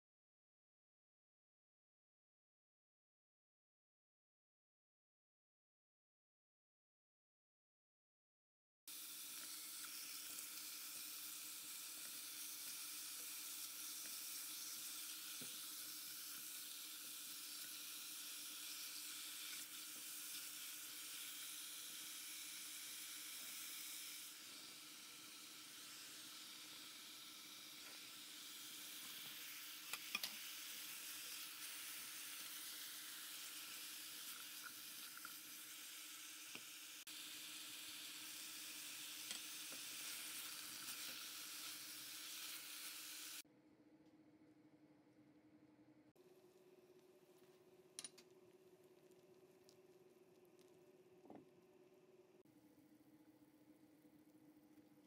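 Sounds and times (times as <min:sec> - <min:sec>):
chicken sizzling in a pot: 0:08.9 - 0:43.5.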